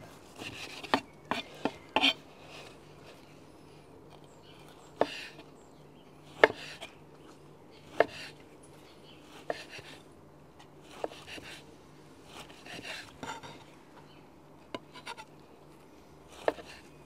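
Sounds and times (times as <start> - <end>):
knife cutting meat: 10.9 - 11.6.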